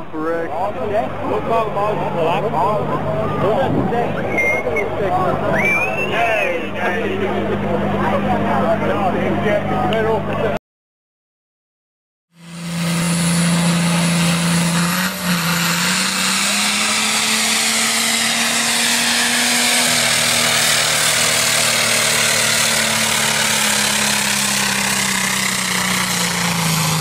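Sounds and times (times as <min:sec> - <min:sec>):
tractor diesel engine under load: 0:12.3 - 0:27.0.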